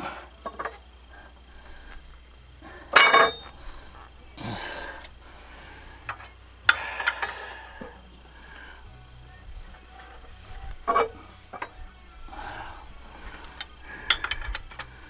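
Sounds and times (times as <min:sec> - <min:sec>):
metal clinks and knocks: 0:02.8 - 0:04.2, 0:09.7 - 0:12.0, 0:13.4 - 0:15.0.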